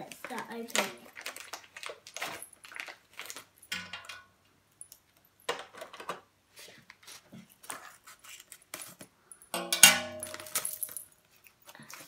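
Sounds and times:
plastic bag crinkling: 0.0s - 3.6s.

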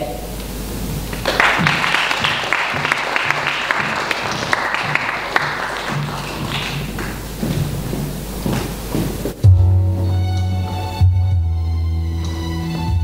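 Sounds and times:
audience applauding: 1.1s - 7.9s
music playing: 4.5s - 13.0s.

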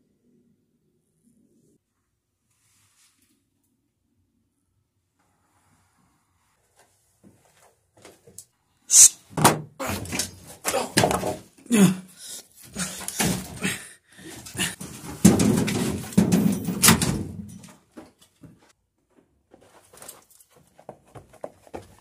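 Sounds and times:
knocks bumps and rustling: 9.3s - 11.6s, 12.7s - 13.7s, 14.3s - 18.7s
grunting: 9.8s - 14.8s.

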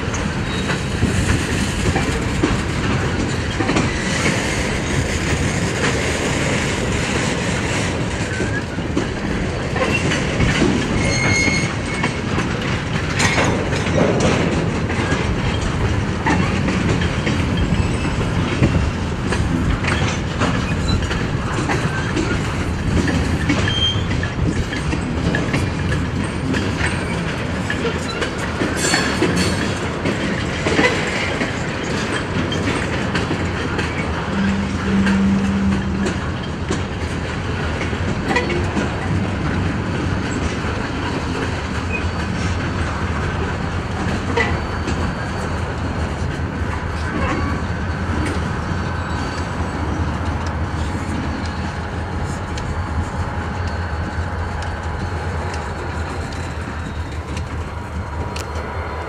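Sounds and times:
clickety-clack over rail joints: 0.0s - 59.0s
freight train wheels rumbling: 0.0s - 59.0s
high wheel squeals: 10.9s - 12.2s, 23.4s - 24.8s, 33.8s - 36.6s, 44.3s - 45.6s, 50.7s - 59.0s.

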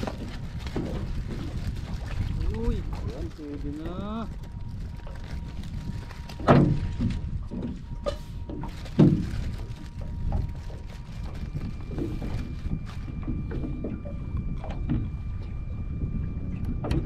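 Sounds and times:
water around a boat: 0.0s - 17.0s
wind: 0.0s - 17.0s
sharp knocks on a boat: 6.4s - 9.2s, 16.7s - 17.0s.

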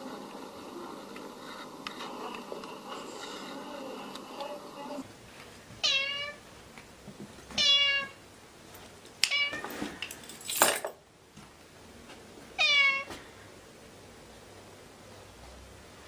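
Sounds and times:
cat meowing: 5.8s - 6.4s, 7.6s - 8.2s, 12.6s - 13.1s.

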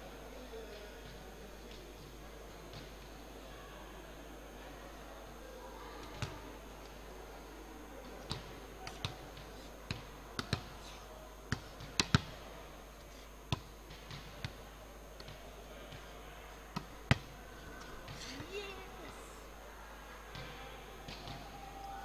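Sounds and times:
faint background noise: 0.0s - 22.0s.

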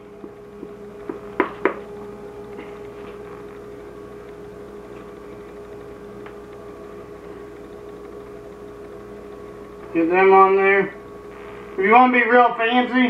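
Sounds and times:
steady electrical hum: 0.0s - 13.0s
sharp knocks: 0.2s - 1.8s.

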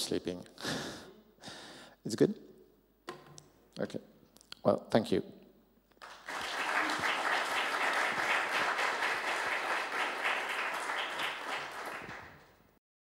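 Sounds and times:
audience applauding: 6.0s - 12.7s.

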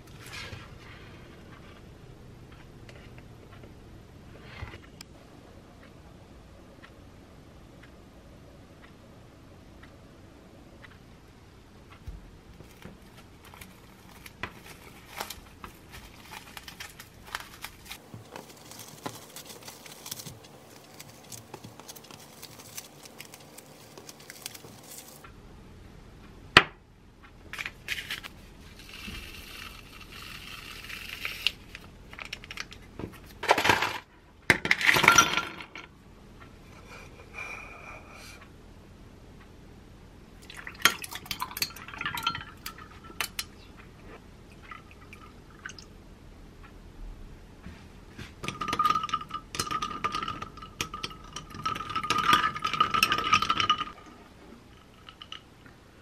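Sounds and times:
cling wrap crinkling: 12.6s - 25.2s
glassware clinking: 40.8s - 43.6s, 48.4s - 54.0s.

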